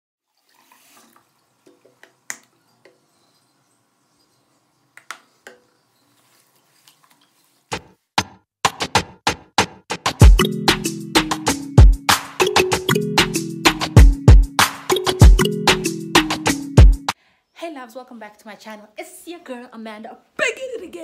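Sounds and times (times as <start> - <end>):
water splashing and dripping: 0.2 - 2.6
percussive music beat: 7.7 - 17.2.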